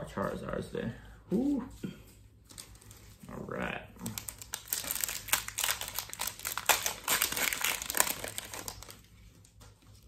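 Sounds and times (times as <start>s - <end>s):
foil wrapper crinkling: 4.0s - 10.0s.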